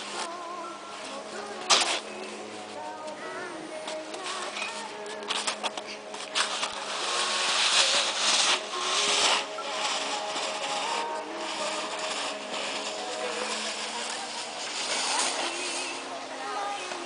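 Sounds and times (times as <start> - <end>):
faint distant music: 0.0 - 17.0
snowboard scraping over snow: 6.2 - 16.0.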